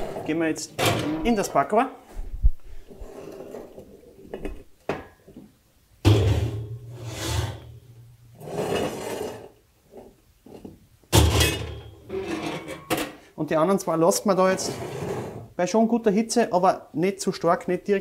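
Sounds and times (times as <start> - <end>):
pot scraping over iron stovetop: 0.0 - 0.4, 2.8 - 4.3, 6.2 - 10.7, 11.5 - 13.0, 14.5 - 15.6.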